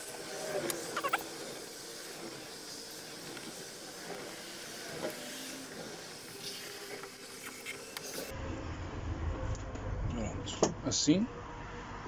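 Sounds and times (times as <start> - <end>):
steady hiss: 0.0 - 8.3.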